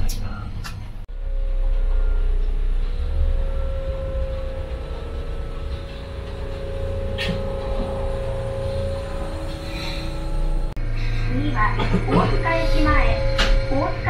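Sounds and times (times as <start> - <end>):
wheels rumbling on rails: 0.0 - 14.0
electric motor hum: 1.1 - 14.0.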